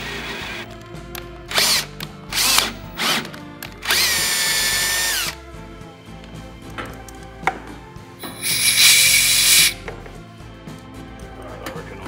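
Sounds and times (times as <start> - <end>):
cordless drill motor whine: 1.5 - 5.4, 8.4 - 9.8.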